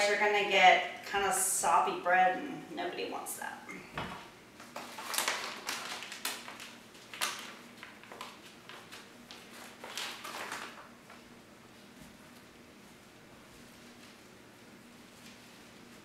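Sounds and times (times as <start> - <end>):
plastic bag crinkling: 4.6 - 11.3.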